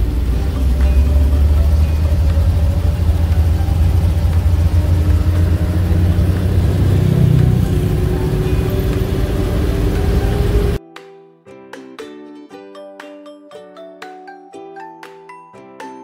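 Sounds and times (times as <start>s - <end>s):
vehicle engine and road rumble: 0.0s - 10.8s.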